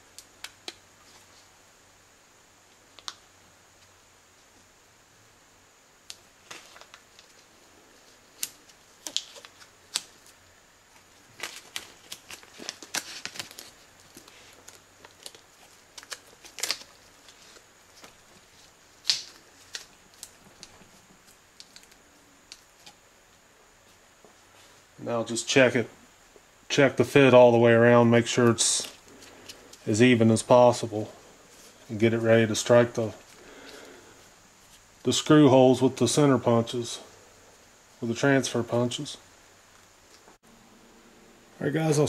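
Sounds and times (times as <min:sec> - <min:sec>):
tape peeling and sticking: 0:06.1 - 0:23.0
tape snapping: 0:19.0 - 0:20.8.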